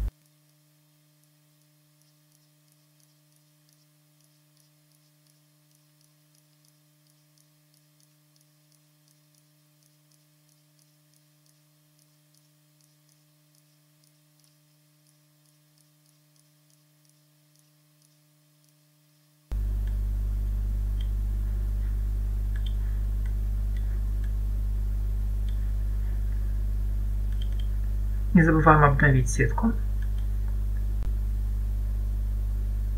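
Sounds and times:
regular light ticking: 0:00.0 - 0:32.2
electrical hum: 0:00.0 - 0:32.9
faint clicks: 0:01.2 - 0:18.8, 0:20.8 - 0:21.2, 0:21.8 - 0:24.4, 0:25.4 - 0:26.5, 0:27.2 - 0:28.0, 0:29.9 - 0:31.1.

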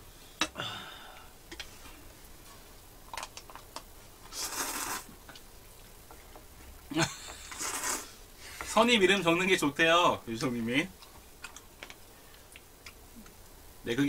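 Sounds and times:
man slurping noodles: 0:04.3 - 0:05.1, 0:07.4 - 0:08.2.

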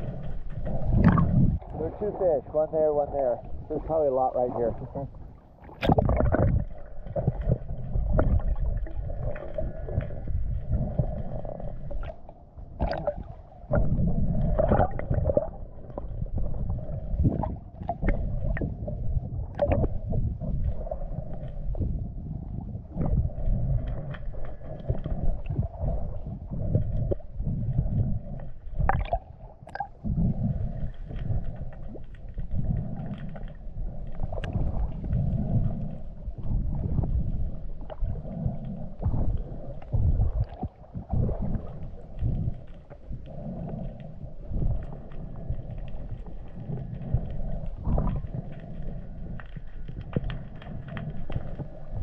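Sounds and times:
dull low thumps: 0:00.0 - 0:04.0
muffled underwater rumble and sloshing: 0:00.0 - 0:52.0.

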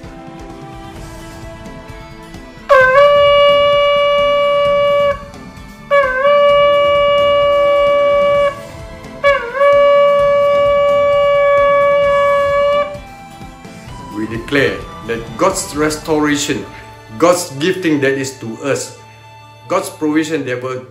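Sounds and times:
faint background music: 0:00.0 - 0:20.9
shofar blasts: 0:00.9 - 0:13.2.

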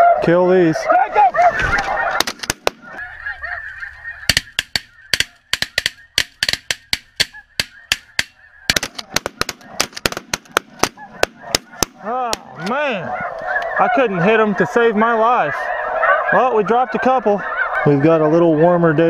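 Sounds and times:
goose calls: 0:00.0 - 0:19.0
shotgun shots: 0:02.2 - 0:02.8, 0:04.3 - 0:12.5.

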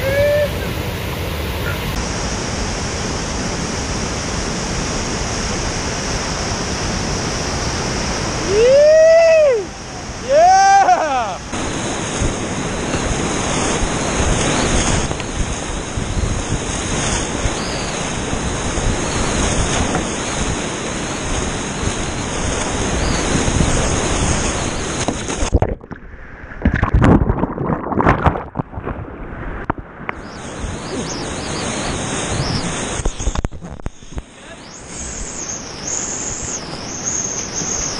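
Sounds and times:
whitewater rushing and crashing: 0:00.0 - 0:37.9
water splashes and knocks: 0:11.5 - 0:15.6, 0:19.6 - 0:20.6, 0:24.3 - 0:30.2.

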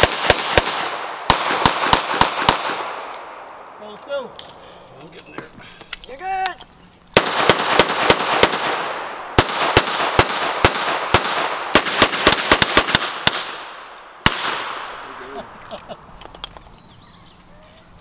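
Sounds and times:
gunshot echo: 0:00.0 - 0:03.5, 0:07.2 - 0:15.1.

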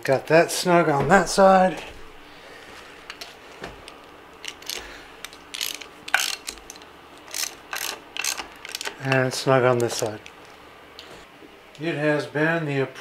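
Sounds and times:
ratchet clicking: 0:04.4 - 0:09.2.

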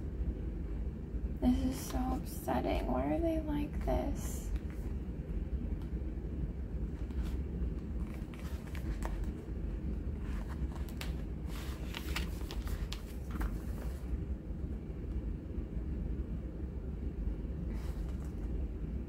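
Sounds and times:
low background rumble: 0:00.0 - 0:19.0
paper pages rustling: 0:06.9 - 0:09.4, 0:10.2 - 0:14.2, 0:17.7 - 0:18.5.

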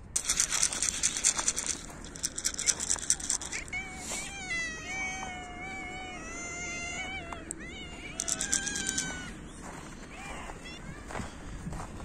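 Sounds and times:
cat meowing: 0:03.5 - 0:09.4
footsteps crunching snow: 0:03.6 - 0:12.0.

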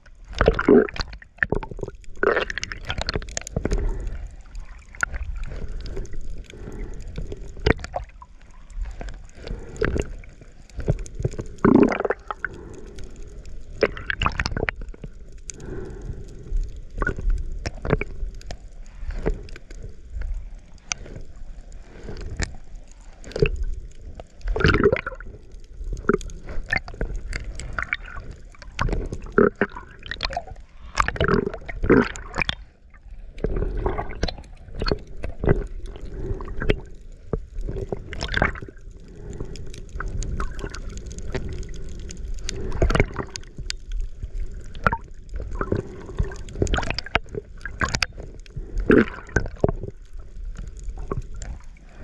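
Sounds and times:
water sloshing and gurgling: 0:00.0 - 0:52.0.

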